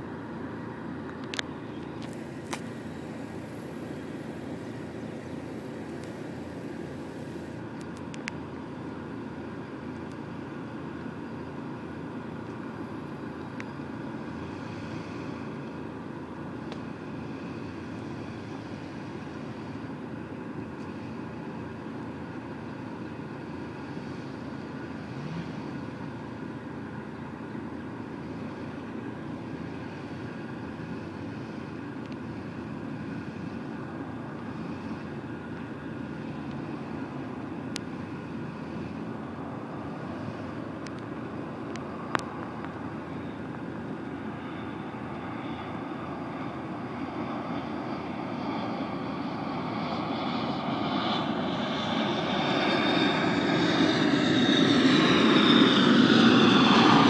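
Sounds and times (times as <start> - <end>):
vehicle engine idling: 0.0 - 49.7.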